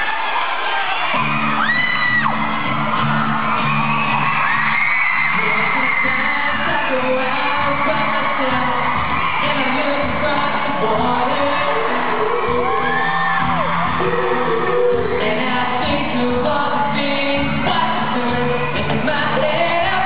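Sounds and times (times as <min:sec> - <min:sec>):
crowd screaming: 0:00.0 - 0:20.0
acoustic guitar strumming: 0:02.2 - 0:20.0
man singing into a microphone: 0:05.3 - 0:20.0.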